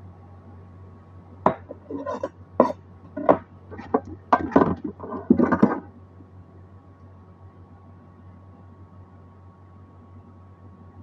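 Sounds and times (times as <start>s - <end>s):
steady low hum: 0.0s - 11.0s
knife and bowl clattering on board: 1.5s - 5.9s.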